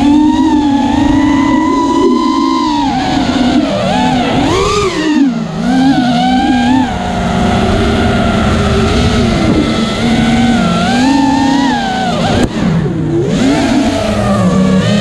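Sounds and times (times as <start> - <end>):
quadcopter motors buzzing whine: 0.0 - 15.0.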